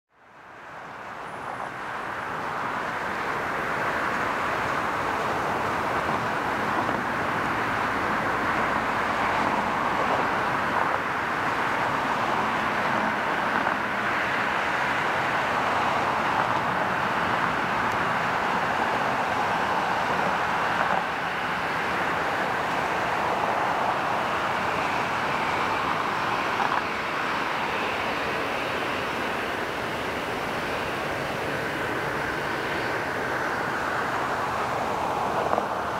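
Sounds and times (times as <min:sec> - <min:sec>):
jet engines at taxi power: 0:00.2 - 0:35.9.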